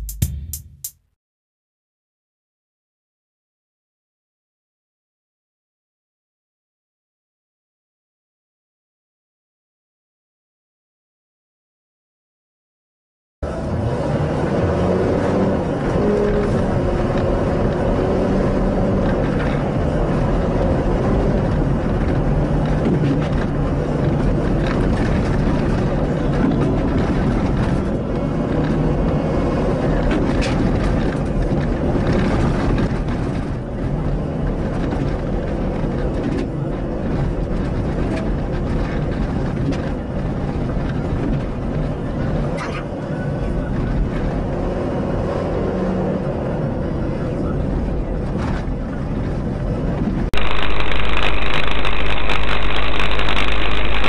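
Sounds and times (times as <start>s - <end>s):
vehicle engine and road noise: 13.4s - 54.0s.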